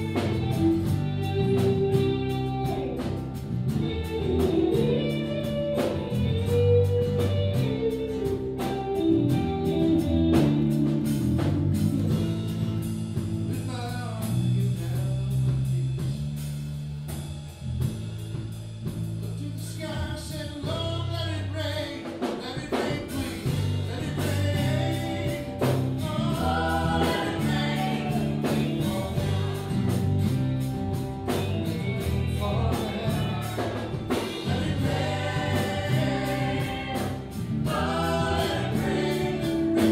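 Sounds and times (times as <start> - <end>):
drums keeping a beat: 0.0 - 21.2, 21.8 - 39.9
bass guitar: 0.0 - 39.9
guitars: 0.0 - 39.9
woman singing: 22.7 - 29.7, 32.4 - 39.9.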